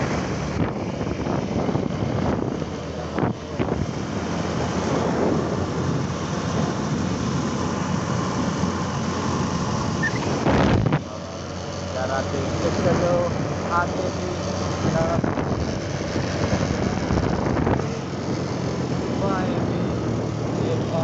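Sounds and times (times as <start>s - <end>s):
wind rushing over microphone: 0.0s - 21.0s
motorcycle engine running: 4.5s - 21.0s.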